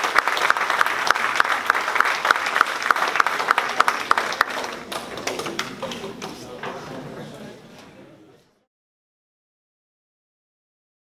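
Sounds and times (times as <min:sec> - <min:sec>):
audience applauding: 0:00.0 - 0:06.0.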